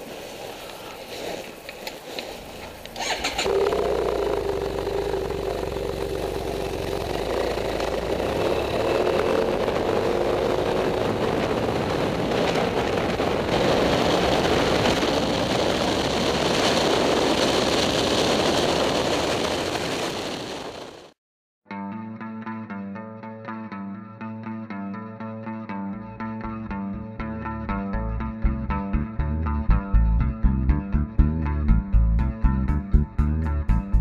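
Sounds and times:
wind noise on microphone: 0.0 - 21.1
motorcycle engine accelerating: 2.6 - 21.2.

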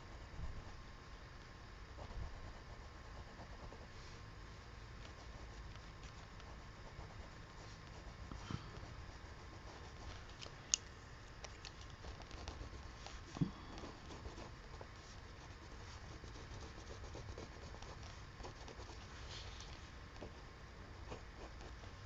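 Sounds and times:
pencil scratching on paper: 5.0 - 10.3, 12.0 - 19.7.

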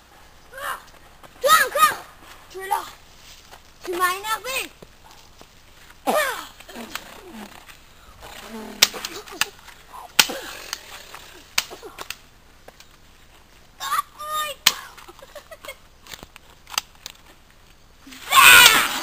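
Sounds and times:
loud voices: 18.1 - 19.0.

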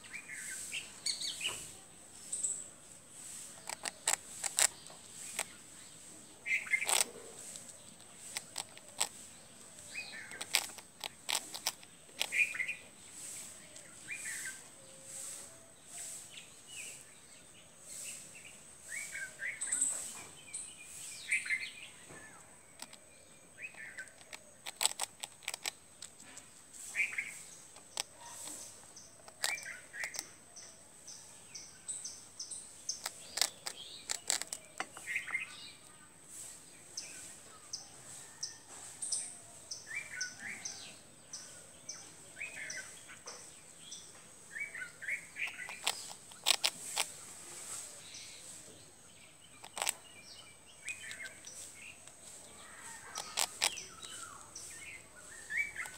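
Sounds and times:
bird chirping: 0.0 - 55.9
squirrel crunching toast: 3.5 - 5.6, 6.4 - 12.7, 22.2 - 30.3, 32.9 - 35.3, 45.1 - 47.3, 49.5 - 50.1, 50.8 - 55.9.

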